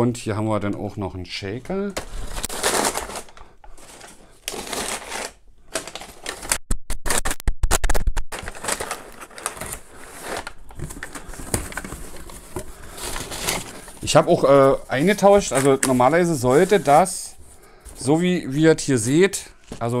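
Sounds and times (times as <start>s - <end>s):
packing paper rustling: 1.9s - 7.4s, 8.3s - 18.3s.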